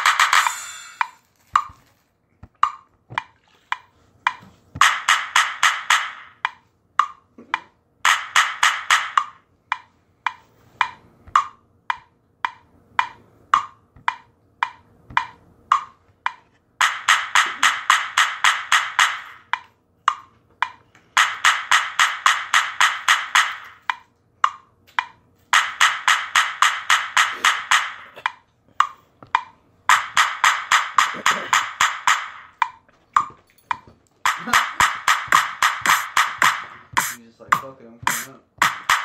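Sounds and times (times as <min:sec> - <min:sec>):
wood block knocks: 0:02.4 - 0:39.0.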